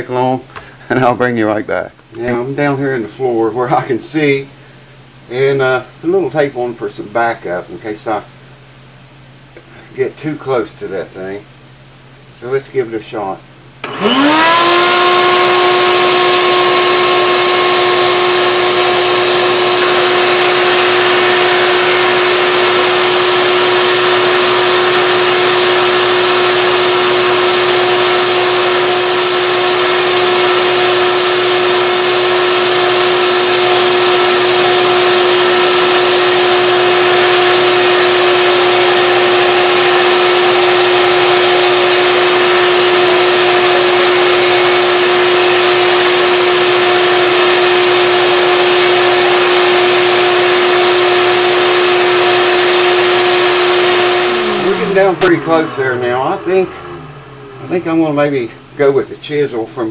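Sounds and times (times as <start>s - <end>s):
rotary tool high whine: 13.8s - 58.8s
sanding drum grinding wood: 13.9s - 58.4s.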